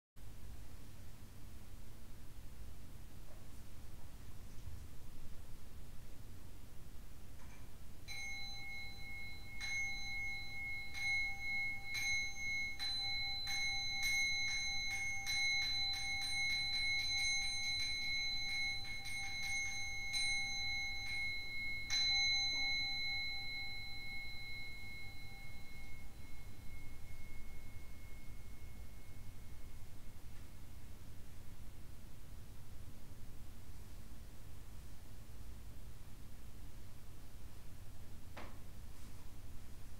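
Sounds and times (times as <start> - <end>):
metal meditation bell ringing: 7.5 - 31.8.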